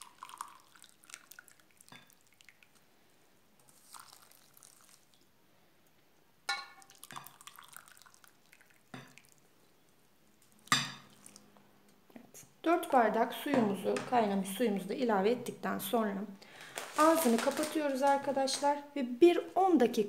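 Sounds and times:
water pouring: 0.0 - 2.8, 3.6 - 5.3, 6.8 - 9.5.

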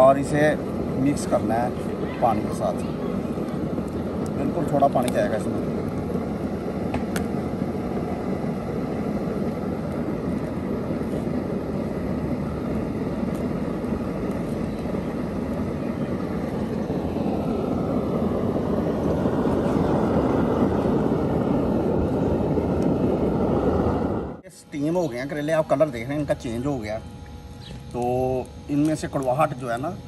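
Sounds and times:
burner flame roaring: 0.0 - 30.0.

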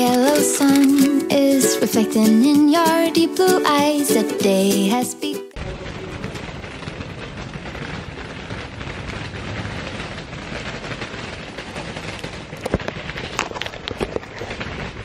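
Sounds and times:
rushing noise on microphone: 5.6 - 15.0.

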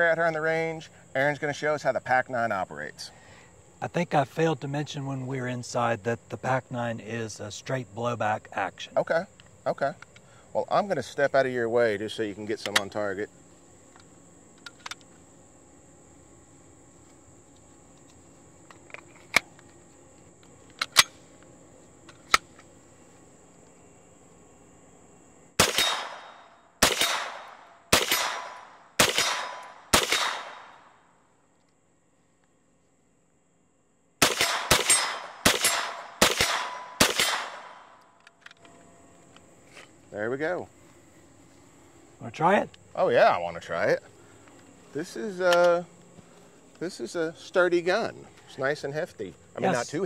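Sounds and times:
rifle action metallic clacks: 20.7 - 21.2
rifle shots: 25.6 - 30.8, 34.2 - 37.9.

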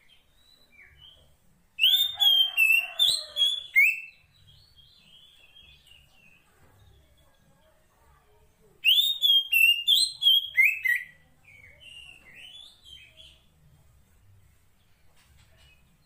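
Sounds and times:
bird whistling call: 1.8 - 4.1.

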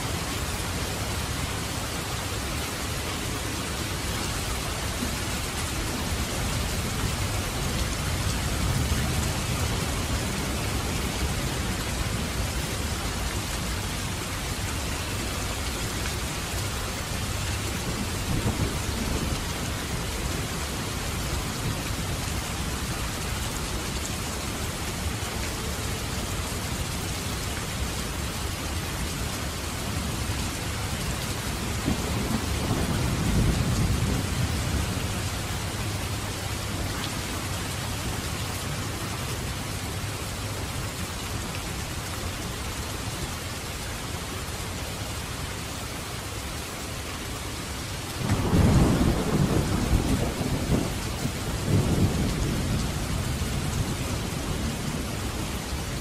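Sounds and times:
steady rain: 0.0 - 56.0
thunder rumbling: 31.6 - 35.2, 48.2 - 55.4.

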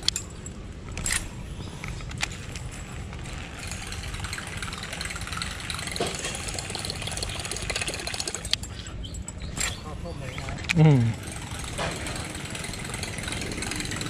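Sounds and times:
fishing reel whirring rattle: 0.0 - 14.0
low steady drone: 0.0 - 14.0.

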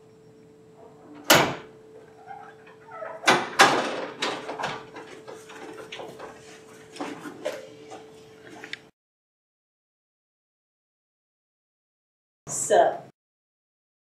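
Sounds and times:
faint steady tone: 0.0 - 3.0
hand truck clattering and rattling: 2.2 - 6.4.

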